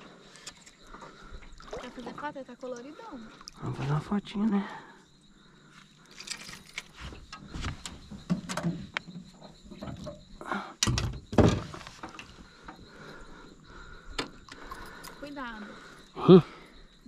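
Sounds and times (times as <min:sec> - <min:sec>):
knocks and thumps on boat: 0:07.2 - 0:12.8.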